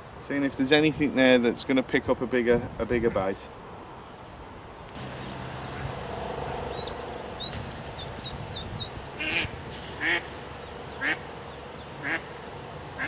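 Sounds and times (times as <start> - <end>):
small birds chirping: 4.9 - 9.4, 10.1 - 12.2
buzzy bird call: 5.0 - 12.3
duck quacking: 9.2 - 10.3, 11.0 - 11.2, 12.0 - 12.3.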